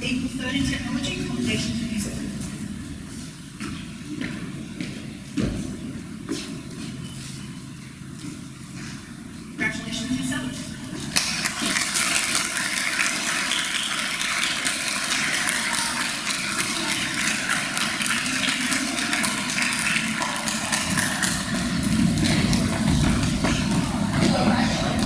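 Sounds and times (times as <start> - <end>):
audience applauding: 11.2 - 25.0.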